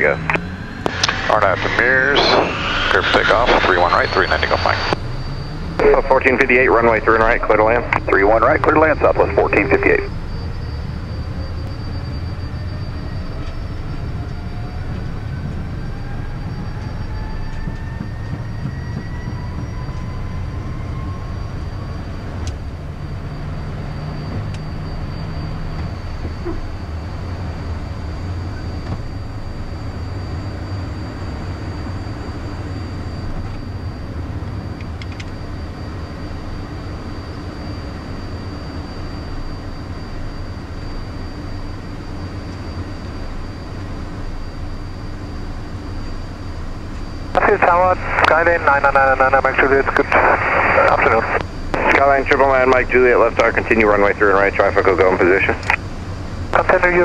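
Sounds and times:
thin high tone: 0.0s - 13.5s
faint rising whine: 0.0s - 57.0s
jet engines rumbling: 0.0s - 57.0s.

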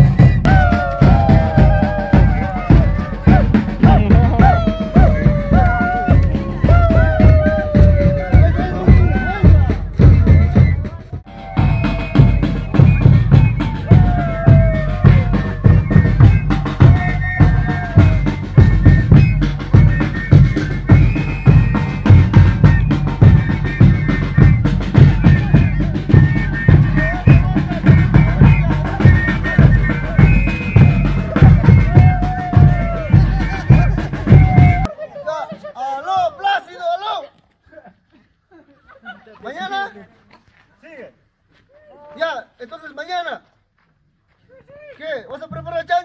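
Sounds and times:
band music: 0.0s - 34.9s
bass drum and snare beat: 0.0s - 34.9s.

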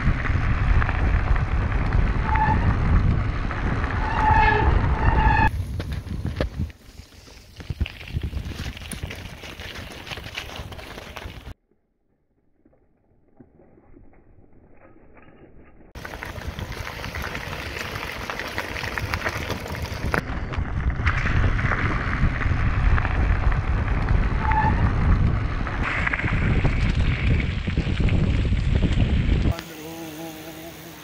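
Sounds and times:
wind on microphone: 0.0s - 6.8s, 16.0s - 29.6s
bicycle tyres crunching on gravel: 0.0s - 11.6s, 15.9s - 31.0s.

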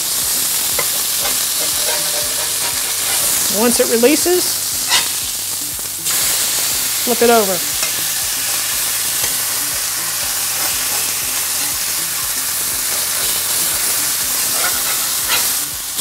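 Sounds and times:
burger patties sizzling on griddle: 0.0s - 16.0s.

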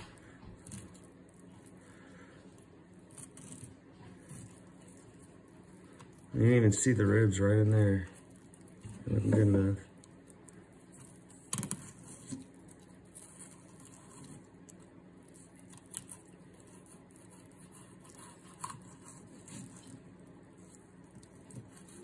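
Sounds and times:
knife slicing fish fillet: 15.8s - 19.9s.

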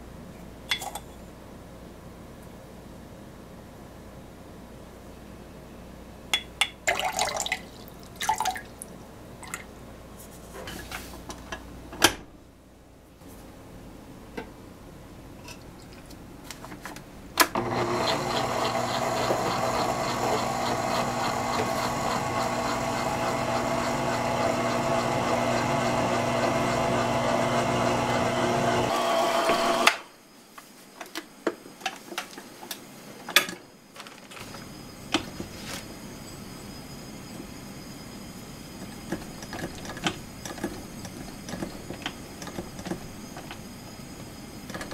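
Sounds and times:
water pouring into bowl: 6.9s - 9.6s
electric stand mixer running: 17.5s - 30.0s.

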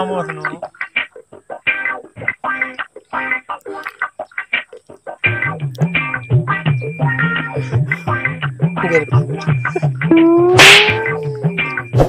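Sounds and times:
background music: 0.0s - 12.0s
held tone: 10.1s - 11.5s
slap across the face: 10.6s - 11.3s.

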